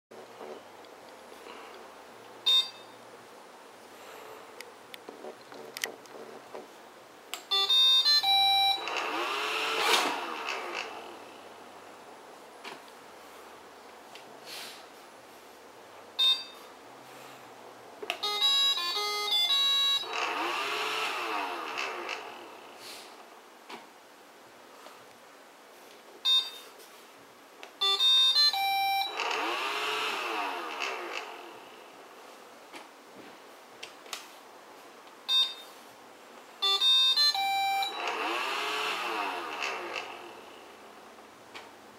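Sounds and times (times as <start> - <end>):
robot vacuum beep: 2.5 - 3.0, 7.5 - 9.8, 16.2 - 16.6, 18.2 - 20.7, 26.3 - 26.7, 27.8 - 30.0, 35.3 - 35.7, 36.6 - 39.0
vacuum fan whirring: 7.4 - 14.4, 17.0 - 23.7, 27.8 - 35.6, 36.6 - 41.9
vacuum fan spinning: 8.8 - 13.8, 20.0 - 23.4, 37.9 - 41.9.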